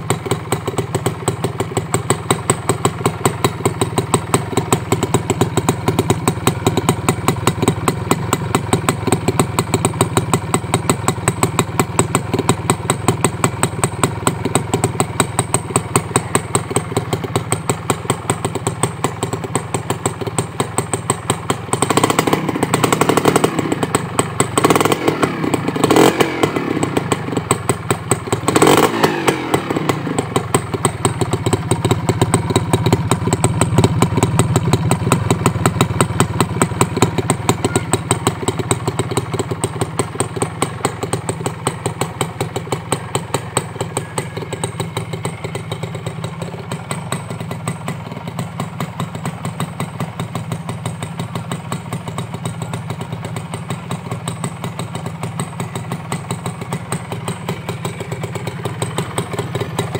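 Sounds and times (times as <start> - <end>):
two-stroke engine idling: 0.0 - 59.9
engine revving: 21.9 - 23.8, 24.6 - 27.3, 28.4 - 30.2.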